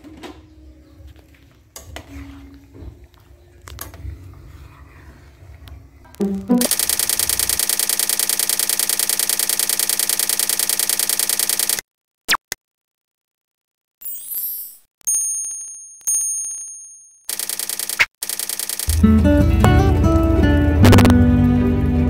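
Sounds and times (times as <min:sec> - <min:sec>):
mouse-style clicks: 0:06.2 - 0:11.8, 0:17.3 - 0:19.0
rapid run of clicks: 0:06.2 - 0:11.8, 0:17.3 - 0:19.1
bell dings: 0:15.1 - 0:17.2.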